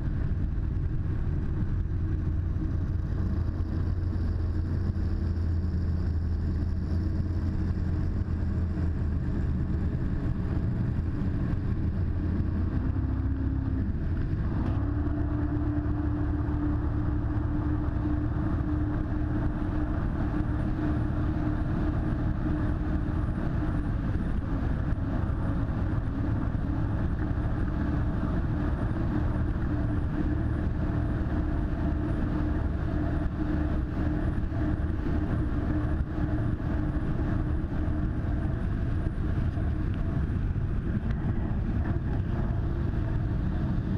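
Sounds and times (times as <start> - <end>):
boat engine running: 0.0 - 43.9
wind: 0.0 - 43.9.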